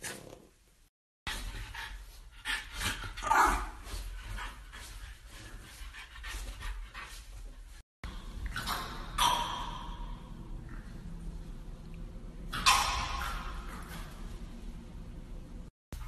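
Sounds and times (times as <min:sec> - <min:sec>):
dog panting rapidly: 0:01.3 - 0:07.8.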